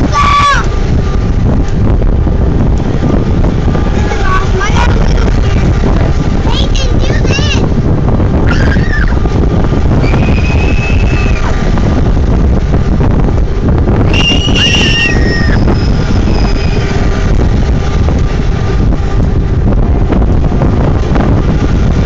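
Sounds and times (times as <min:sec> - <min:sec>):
girls screaming: 0:00.0 - 0:00.6, 0:08.5 - 0:09.2
wind buffeting microphone: 0:00.0 - 0:22.0.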